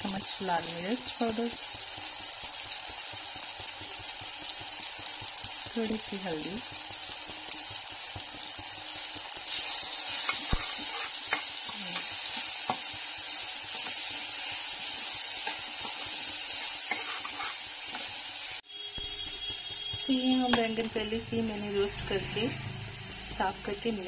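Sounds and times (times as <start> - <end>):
onions and tomatoes sizzling in oil: 0.0 - 24.0
metal spoon scraping pan: 9.5 - 13.0, 13.6 - 18.1.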